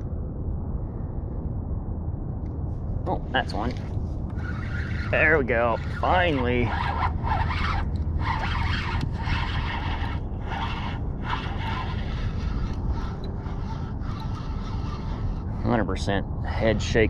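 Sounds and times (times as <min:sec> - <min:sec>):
steady low rumble: 0:00.0 - 0:17.0
spinning reel being cranked: 0:04.4 - 0:15.7.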